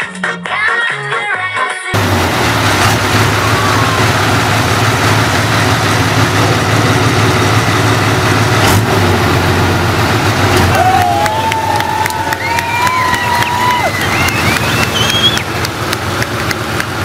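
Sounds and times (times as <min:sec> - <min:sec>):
motorcycle engine idling: 0:02.0 - 0:08.6.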